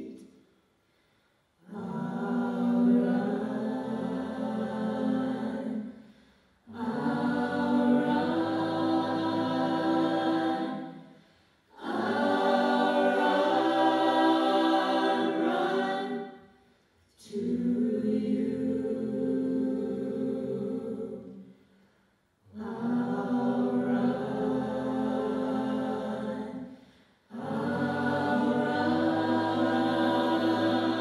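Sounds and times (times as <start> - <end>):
a cappella vocal harmony singing: 0.0 - 0.4, 1.4 - 31.0.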